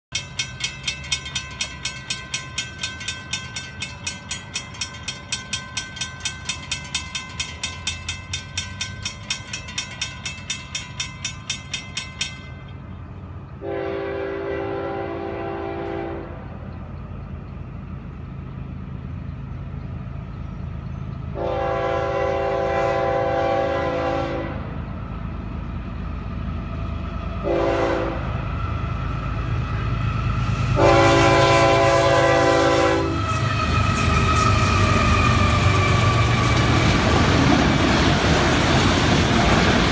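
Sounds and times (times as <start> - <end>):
railroad crossing bell ringing: 0.1 - 26.6, 30.4 - 39.9
locomotive rumble: 0.2 - 39.9
train horn: 13.6 - 16.6, 21.3 - 24.7, 27.4 - 28.5, 30.6 - 36.1.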